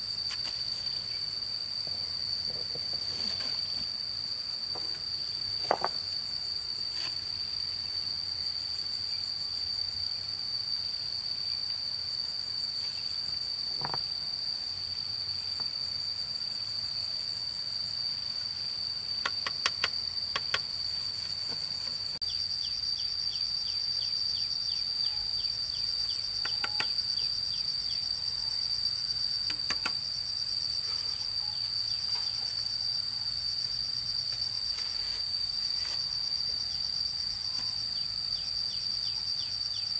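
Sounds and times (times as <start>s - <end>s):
insects singing: 0.0s - 39.9s.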